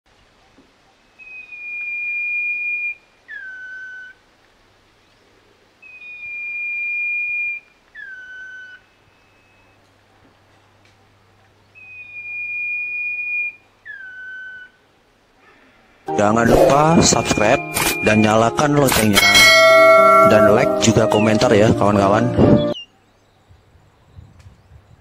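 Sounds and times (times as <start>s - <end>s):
bird whistling song: 1.2s - 4.2s, 5.8s - 9.8s, 11.7s - 14.8s, 22.4s - 22.9s.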